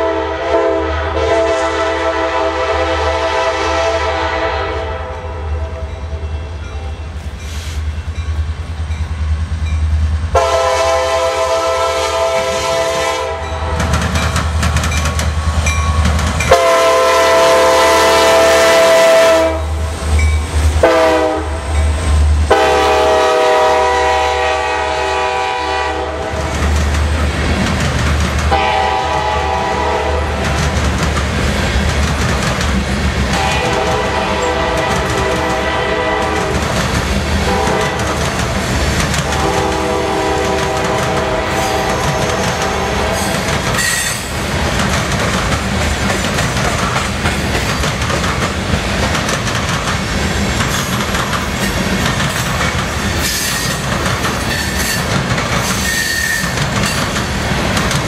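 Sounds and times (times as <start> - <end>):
train horn blasts: 0.0 - 7.2, 10.3 - 13.9, 16.4 - 19.9, 20.8 - 21.8, 22.5 - 26.4, 28.5 - 30.6, 33.3 - 36.7, 37.4 - 38.2, 39.2 - 44.2
train cars clickety-clack on rails: 5.8 - 58.0.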